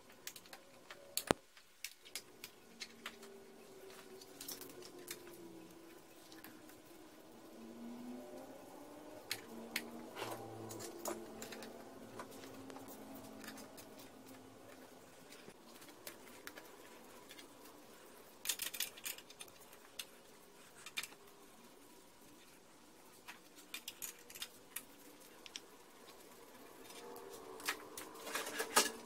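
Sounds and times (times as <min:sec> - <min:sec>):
hand tools clicking and rattling: 0:09.1 - 0:21.3, 0:23.2 - 0:29.0.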